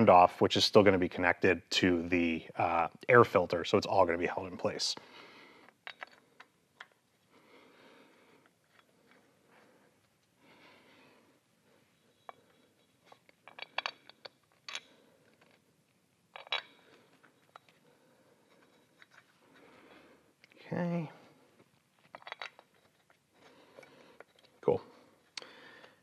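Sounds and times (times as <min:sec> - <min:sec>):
soft handling noise: 0:08.3 - 0:26.0.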